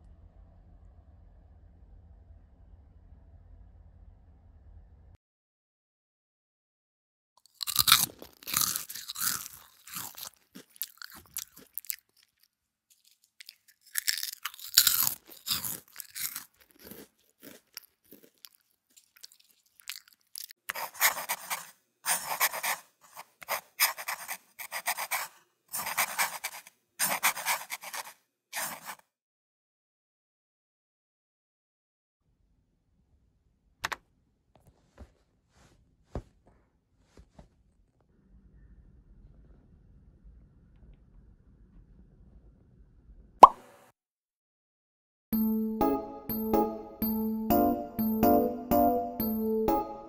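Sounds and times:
chewing crusty bread: 7.4s - 29.0s.

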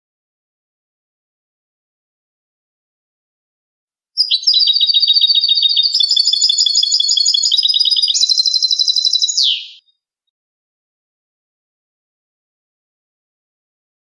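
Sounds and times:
finch singing: 4.2s - 9.9s.

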